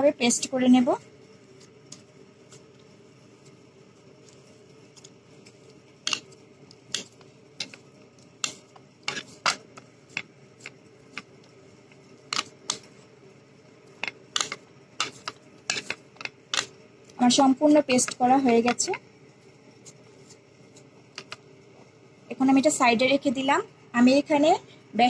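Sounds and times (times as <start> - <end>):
hands slapping mash in bowl: 14.0 - 16.7.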